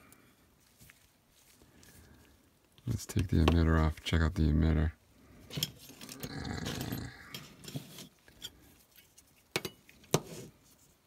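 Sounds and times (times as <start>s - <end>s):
metal parts scraping: 5.4s - 9.3s.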